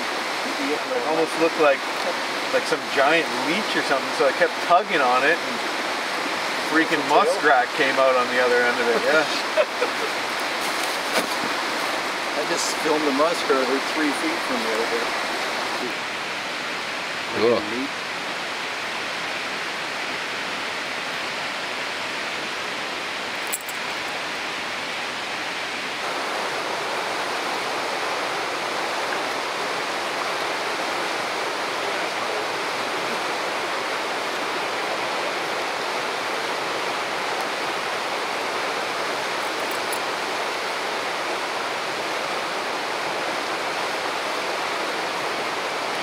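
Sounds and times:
river water rushing over rapids: 0.0s - 46.0s.

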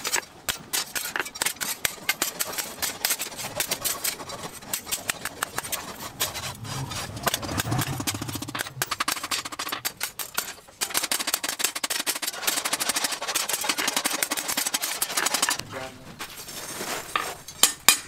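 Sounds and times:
low engine-like drone: 5.4s - 9.9s.

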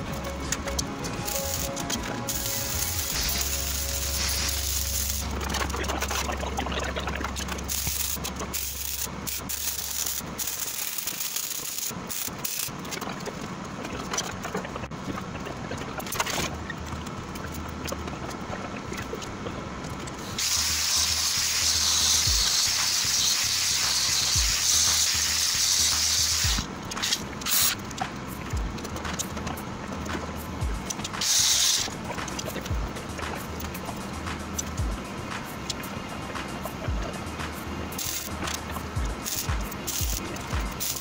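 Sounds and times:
angle grinder grinding steel: 0.0s - 5.6s.

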